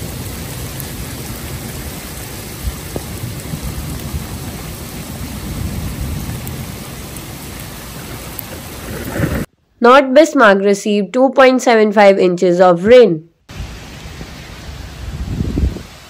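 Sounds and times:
heavy rain pouring: 0:00.0 - 0:09.5, 0:13.5 - 0:16.0.

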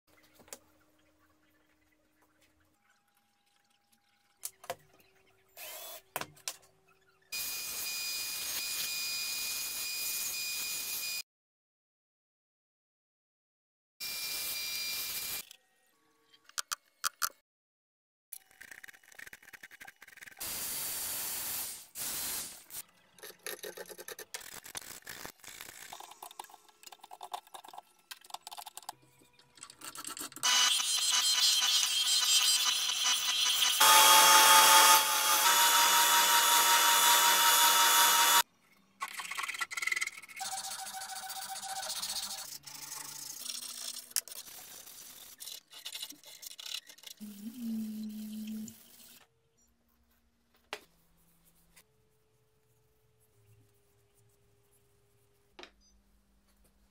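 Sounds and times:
bandsaw cutting wood: 0:30.4 - 0:38.4
electric woodworking machine running: 0:30.5 - 0:38.4.

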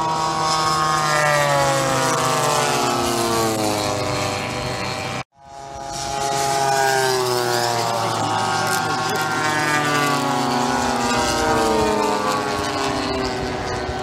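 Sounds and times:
faint second model engine: 0:00.0 - 0:14.0
model plane propeller engine droning: 0:00.0 - 0:14.0.

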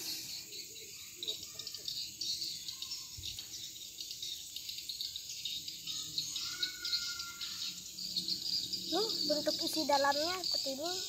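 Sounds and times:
insects chirping: 0:00.0 - 0:11.0.

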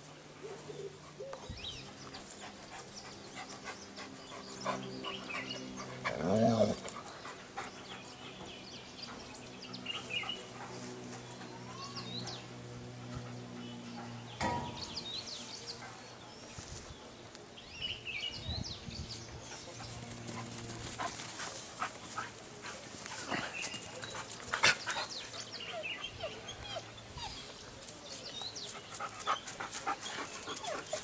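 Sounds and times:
dog whimpering and panting: 0:29.3 - 0:31.0.

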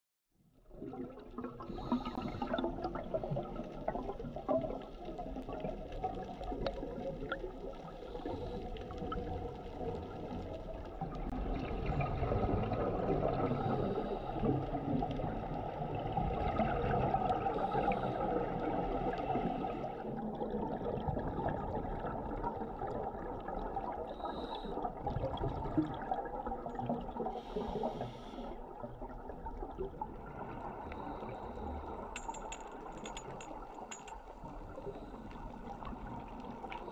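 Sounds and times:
underwater water noise: 0:00.5 - 0:36.9
bubbles gurgling: 0:00.7 - 0:27.6
diver breathing through regulator: 0:01.7 - 0:02.7, 0:13.4 - 0:14.7, 0:24.2 - 0:25.0, 0:27.3 - 0:28.6.

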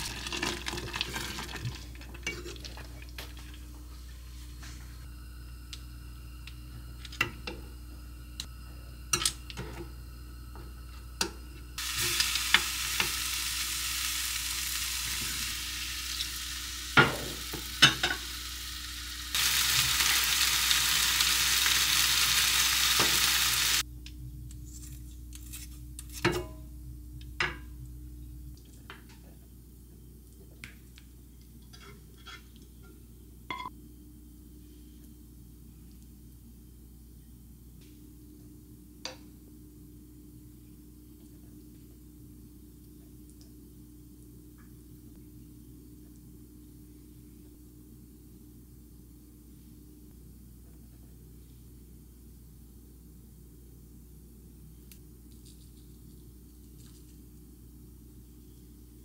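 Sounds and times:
meat sizzling in a pan: 0:11.8 - 0:23.8.

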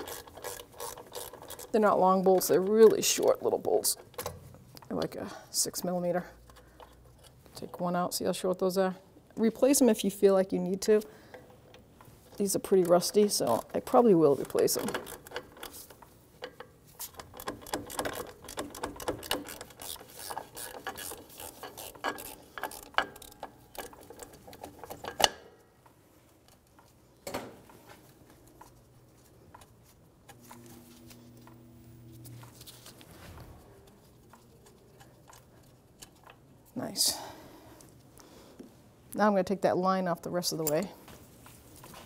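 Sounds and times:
hand ratchet clicking: 0:00.0 - 0:03.2, 0:12.6 - 0:25.4.

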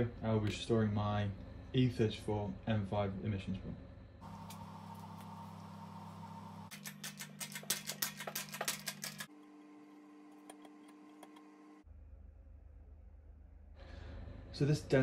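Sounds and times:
steady low hum: 0:00.0 - 0:15.0
metal parts clicking and tapping: 0:06.7 - 0:09.3.

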